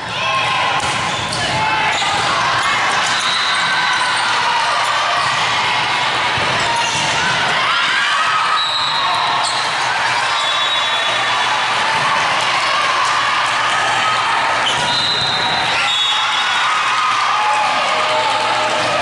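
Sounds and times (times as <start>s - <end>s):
echoing din of voices: 0.0s - 19.0s
sneaker squeaks on court floor: 1.1s - 2.2s, 8.6s - 11.0s, 14.6s - 16.2s.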